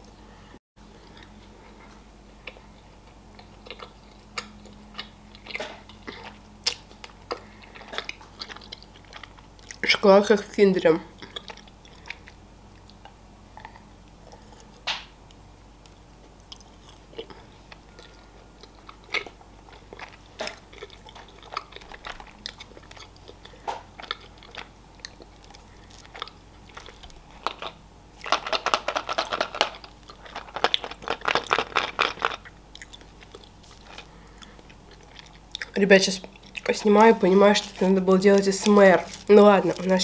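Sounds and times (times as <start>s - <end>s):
person chewing chocolate: 0.9s - 10.0s, 11.1s - 40.0s
foil crinkling: 26.8s - 32.4s, 36.6s - 40.0s.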